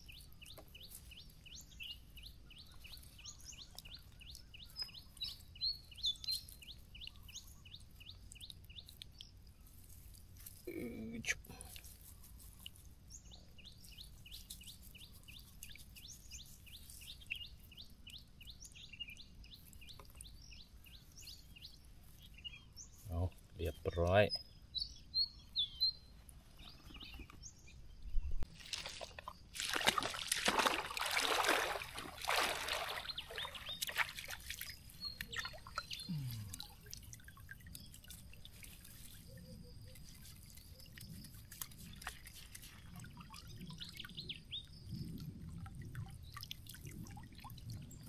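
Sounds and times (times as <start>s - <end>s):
water dripping and trickling: 0.0s - 22.4s, 28.4s - 48.0s
water running off a mesh trap: 28.5s - 39.3s
water splashing from wading: 28.6s - 39.2s.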